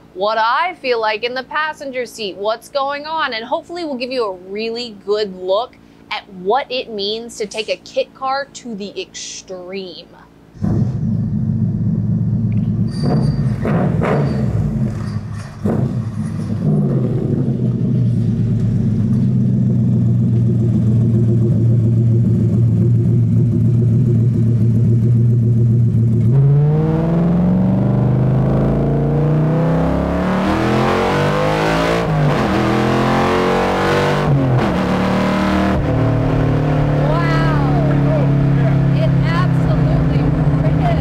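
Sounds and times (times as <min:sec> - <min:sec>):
race car engine accelerating: 0:10.6 - 0:41.0.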